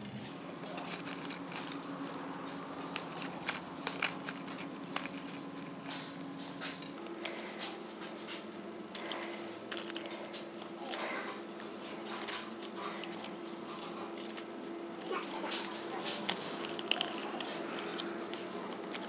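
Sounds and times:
steady low hum: 0.0s - 19.0s
plastic bag crinkling: 0.6s - 6.2s, 9.0s - 19.0s.

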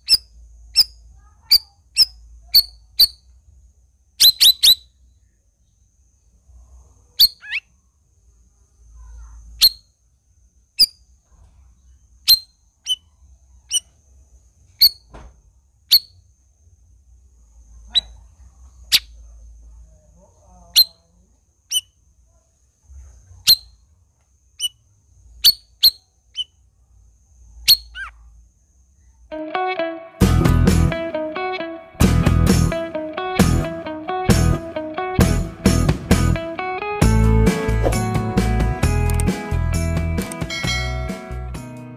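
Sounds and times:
songbird whistled calls: 0.0s - 3.2s, 4.2s - 4.9s, 9.6s - 9.9s, 12.3s - 13.0s, 14.8s - 15.1s, 21.7s - 21.9s, 25.4s - 26.5s, 27.7s - 28.1s.

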